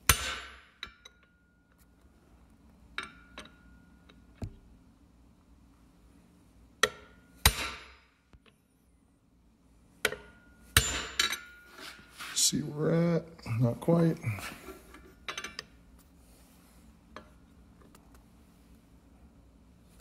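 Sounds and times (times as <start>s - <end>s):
hammer striking steel pipe: 0.0s - 1.3s, 6.8s - 8.0s, 10.0s - 11.6s.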